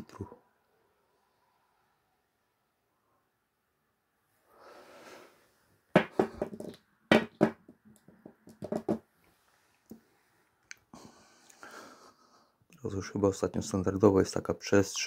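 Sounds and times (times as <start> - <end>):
glass bottle knocks and clicks: 6.0 - 9.0
soft rustle: 9.2 - 10.6.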